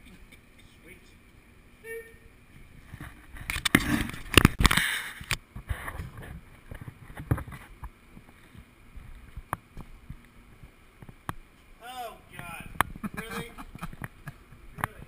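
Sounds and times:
microphone handling rustle: 0:02.5 - 0:11.8.

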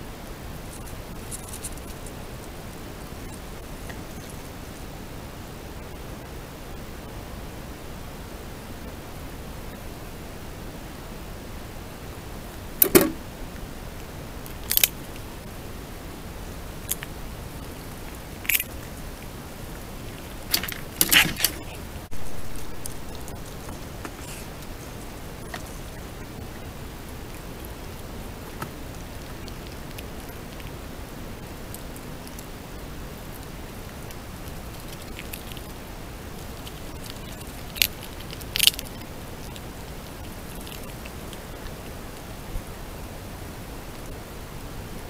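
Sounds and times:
steady hiss: 0:00.0 - 0:45.0
animal chewing and scrabbling: 0:00.5 - 0:04.9, 0:14.4 - 0:15.3, 0:16.7 - 0:42.8.

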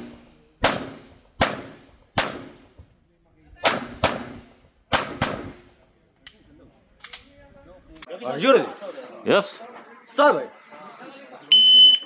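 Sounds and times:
pistol shots ringing off walls: 0:00.0 - 0:02.8, 0:03.6 - 0:05.7.

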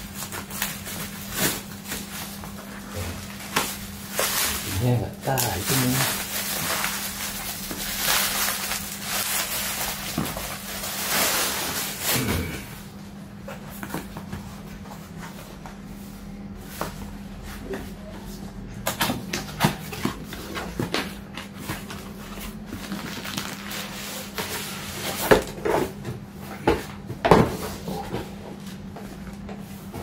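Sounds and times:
plastic packaging rustling: 0:00.0 - 0:12.3, 0:21.0 - 0:25.5
steady low hum: 0:00.0 - 0:30.0.

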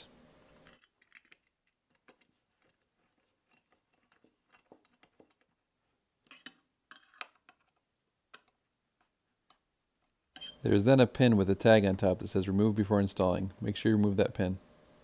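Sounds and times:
screwdriver clicks and scrapes: 0:00.6 - 0:05.6, 0:10.3 - 0:10.6.

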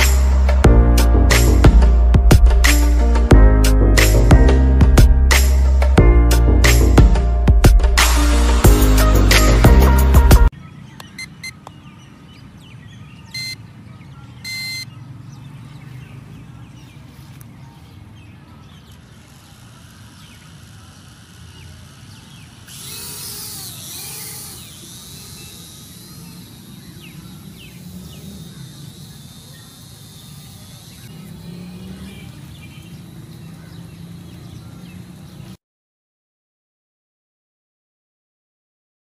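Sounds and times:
short electronic beeps: 0:13.3 - 0:13.6, 0:14.4 - 0:14.9
drone propeller motors whining: 0:14.4 - 0:14.8, 0:18.7 - 0:35.4.

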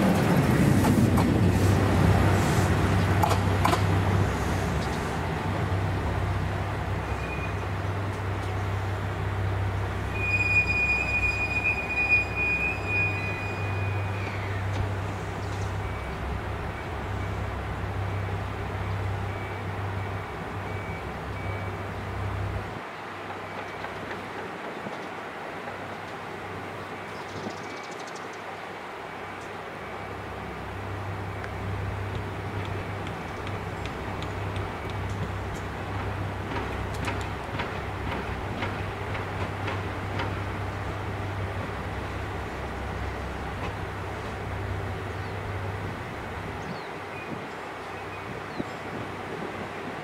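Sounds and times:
diesel railcar engine idling: 0:00.0 - 0:22.8, 0:29.8 - 0:48.4.

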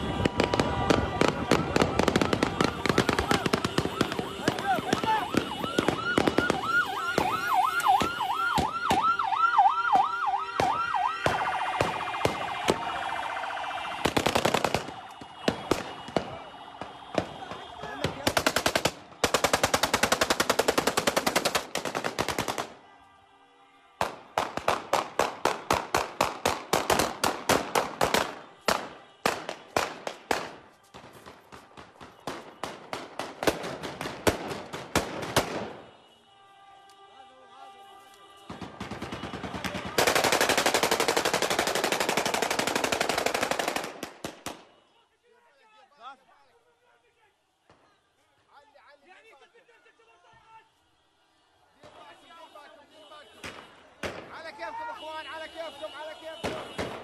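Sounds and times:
siren wailing: 0:00.0 - 0:18.2.

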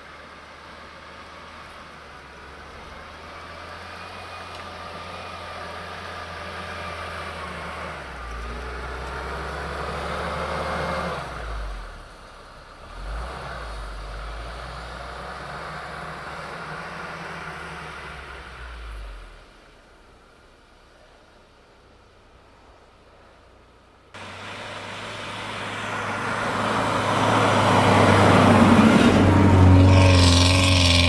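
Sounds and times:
car engine revving under load: 0:24.2 - 0:31.0.

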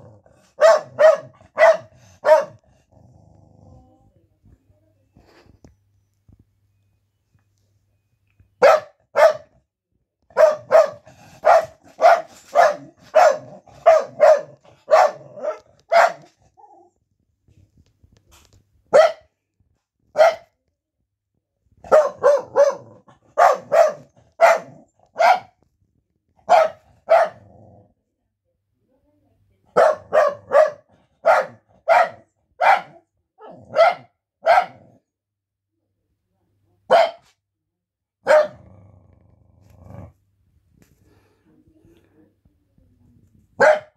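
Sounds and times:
dog barking: 0:00.6 - 0:02.6, 0:08.6 - 0:09.6, 0:10.3 - 0:16.4, 0:18.9 - 0:19.3, 0:20.1 - 0:20.6, 0:21.8 - 0:25.6, 0:26.4 - 0:27.5, 0:29.7 - 0:35.0, 0:36.9 - 0:37.4, 0:38.2 - 0:38.6, 0:43.6 - 0:43.9.

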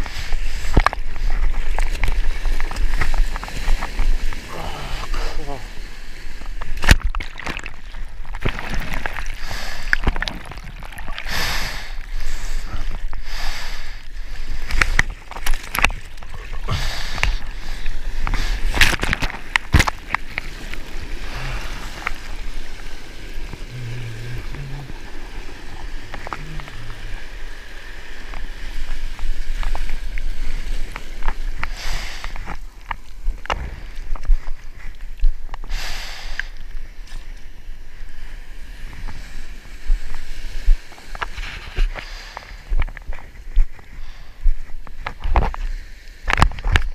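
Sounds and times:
whitewater rushing and splashing: 0:00.0 - 0:34.5.

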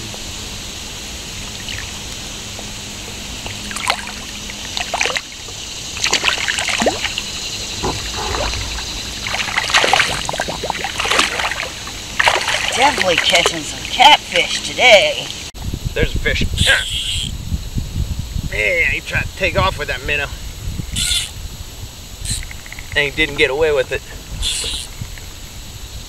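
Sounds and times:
river current running: 0:00.0 - 0:15.5
fish splashing and thrashing: 0:03.5 - 0:14.1.

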